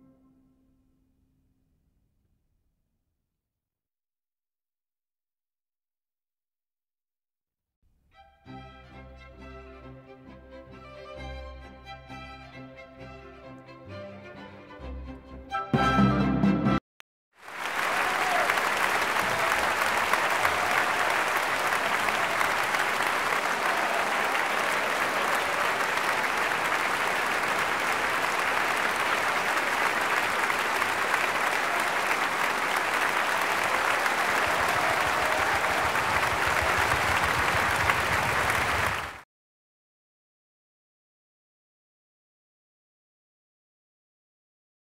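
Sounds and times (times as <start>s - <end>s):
audience applauding: 17.4s - 39.2s.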